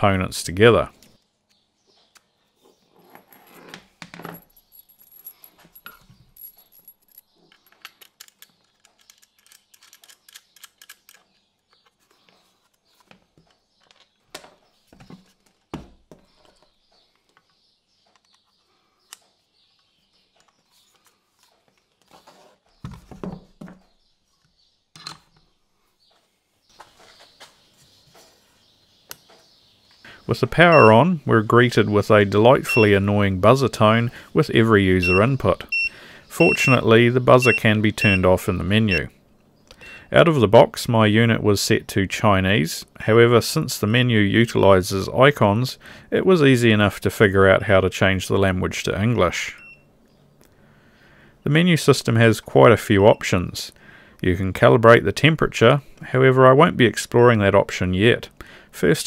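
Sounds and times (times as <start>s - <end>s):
small clicks and rattles of handling: 4.1s - 14.6s.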